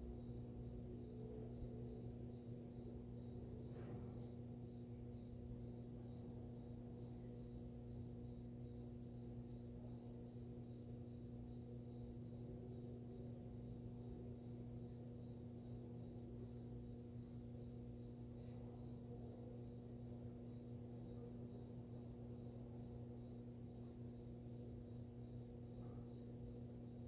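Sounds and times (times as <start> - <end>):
aquarium filter pump humming: 0.0 - 27.0.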